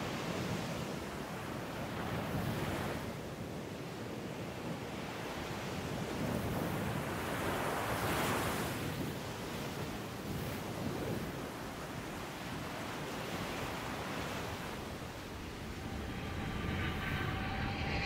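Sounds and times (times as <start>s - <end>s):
sea waves washing in: 10.5s - 18.0s.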